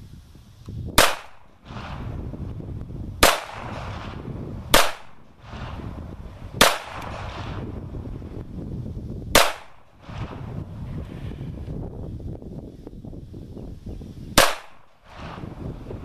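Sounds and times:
pistol shots with echo: 1.0 - 2.2, 3.2 - 6.0, 6.6 - 7.8, 9.4 - 10.5, 14.4 - 15.6.

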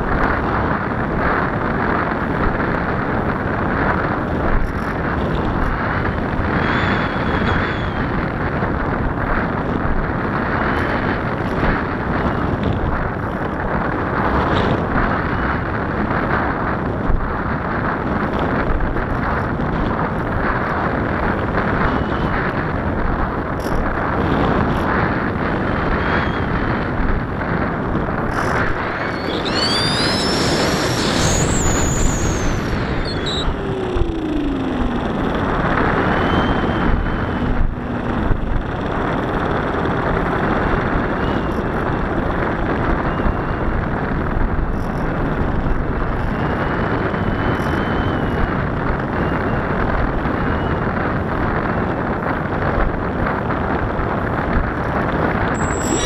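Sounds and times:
wind rushing over microphone: 0.0 - 56.0
model plane motor whine: 6.1 - 8.2, 28.4 - 42.0, 55.6 - 56.0.

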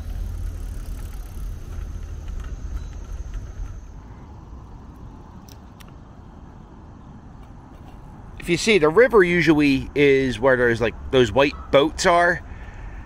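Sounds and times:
steady low rumble: 0.0 - 10.1.

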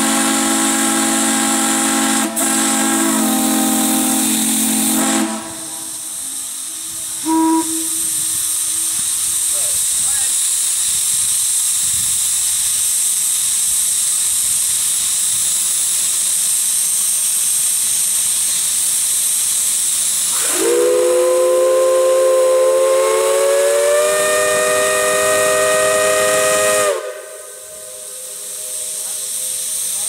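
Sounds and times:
steam hissing: 0.0 - 30.0
chime steam whistle chord: 1.8 - 8.8.

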